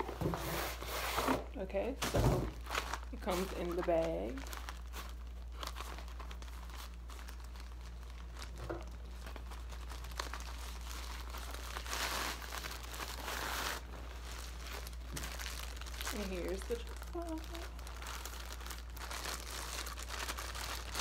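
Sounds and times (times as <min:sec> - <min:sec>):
plastic and bag crinkling: 0:00.0 - 0:21.0.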